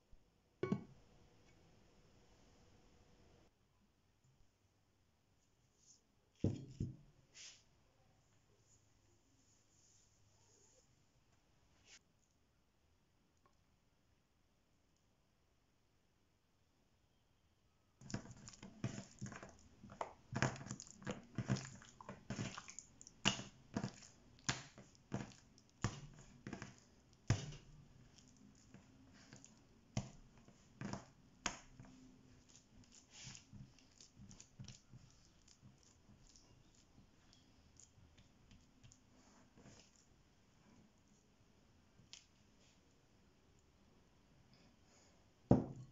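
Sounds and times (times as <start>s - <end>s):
dough slapping on metal worktop: 20.0s - 27.8s.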